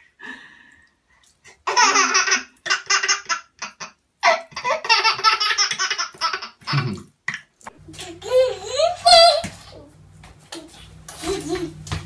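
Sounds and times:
baby laughing: 1.6s - 7.0s, 7.9s - 9.5s.

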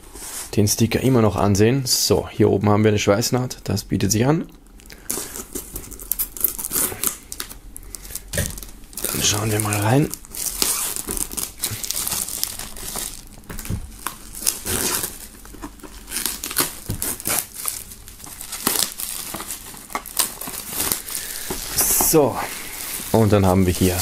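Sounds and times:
plastic film crinkling: 4.8s - 24.0s.

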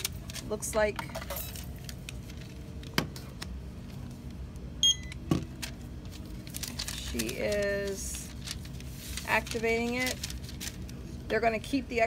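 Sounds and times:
steady low hum: 0.0s - 12.0s
barcode scanner beep: 4.8s - 5.2s.

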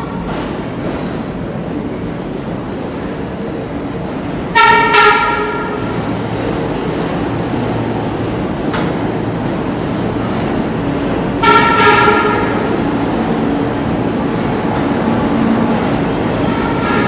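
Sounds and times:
subway train rolling: 0.0s - 17.0s
train horn toots: 4.5s - 6.0s, 11.4s - 12.8s, 16.5s - 17.0s.

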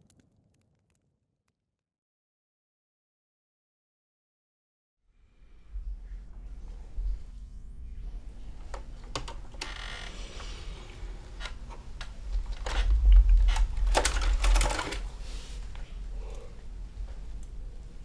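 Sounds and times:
typewriter ratcheting rattle: 12.6s - 15.1s
deep low rumble: 12.7s - 14.5s
typewriter keys clacking: 13.4s - 15.1s.

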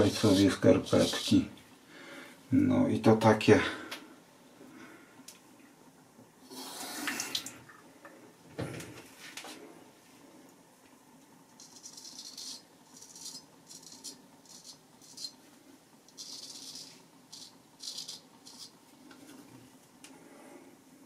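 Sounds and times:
razor scraping stubble: 11.6s - 15.4s, 16.2s - 18.8s.

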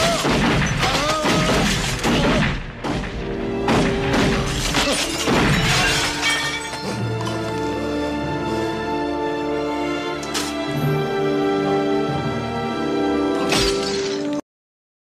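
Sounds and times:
gunshots: 0.0s - 6.2s
dramatic film music: 0.0s - 14.4s
glass and crockery shattering: 4.5s - 7.6s, 13.4s - 14.4s.

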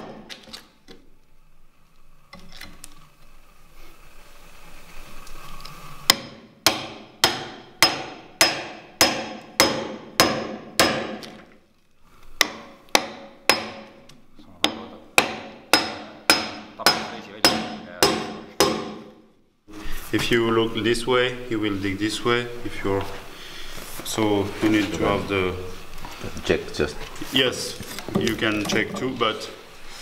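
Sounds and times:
hammer striking chisel: 6.1s - 11.4s, 12.4s - 19.2s.

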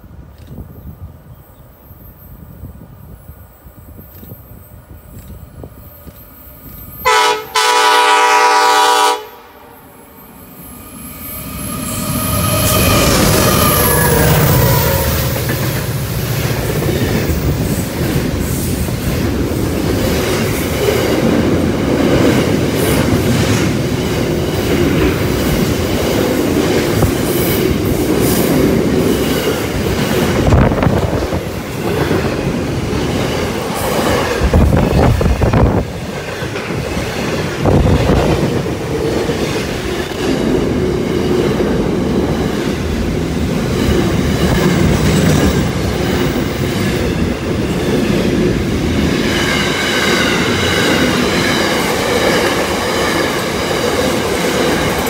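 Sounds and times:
freight train rumble and rattle: 0.0s - 9.5s, 10.4s - 55.0s
train wheels clacking: 11.5s - 55.0s.

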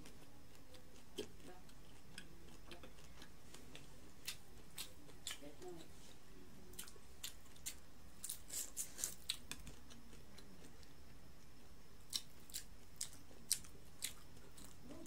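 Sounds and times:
crunchy chewing: 0.0s - 15.0s.

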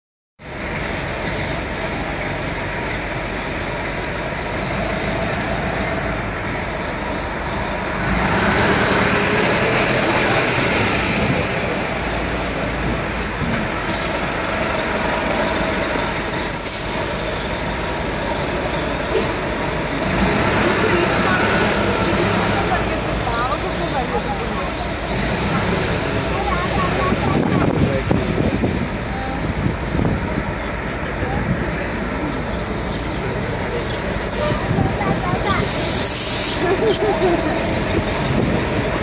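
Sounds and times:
road traffic and engine noise: 0.4s - 39.0s
brief high squeal: 16.0s - 18.8s, 34.2s - 34.8s, 35.6s - 37.2s.

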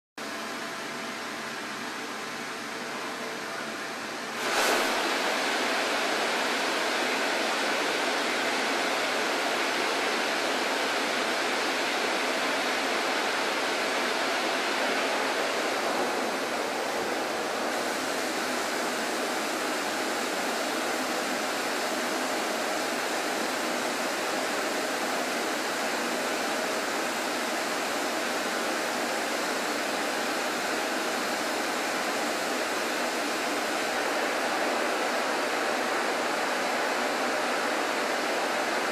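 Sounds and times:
coolant spray hissing: 4.4s - 7.0s, 14.7s - 34.9s.

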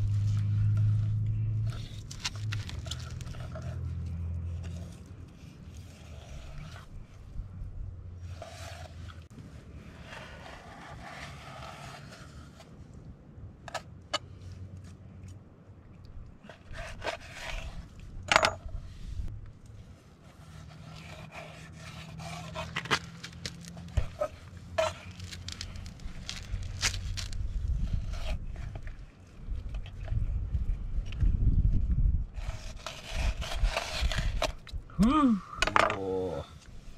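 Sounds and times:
knife scraping and slicing fish: 4.5s - 7.2s, 16.4s - 17.8s, 20.2s - 28.9s, 32.4s - 34.6s.

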